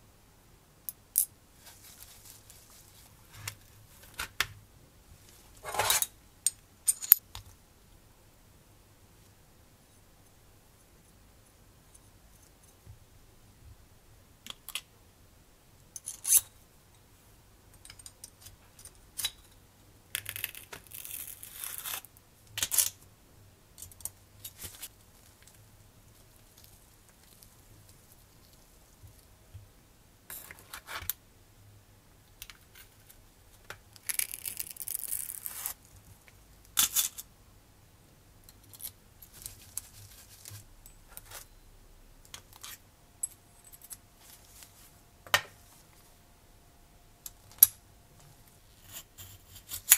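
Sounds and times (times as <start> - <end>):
scratchy rustling: 1.6 - 4.1, 39.2 - 40.6.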